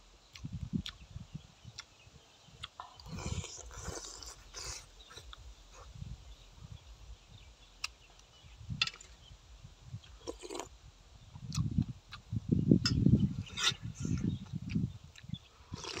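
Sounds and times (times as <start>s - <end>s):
chewing: 2.6s - 5.9s, 13.6s - 16.0s
slurping soup: 3.0s - 5.4s, 10.2s - 10.7s, 15.7s - 16.0s.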